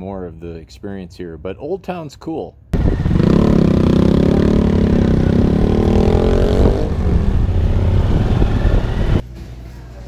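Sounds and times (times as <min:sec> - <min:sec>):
motorcycle engine running: 0:02.8 - 0:09.2.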